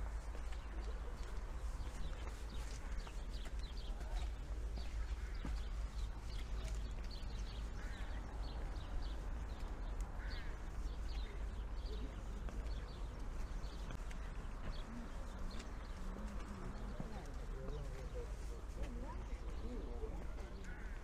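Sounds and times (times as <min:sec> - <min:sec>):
horse hooves clip-clopping: 0:00.0 - 0:21.0
low street rumble: 0:00.0 - 0:21.0.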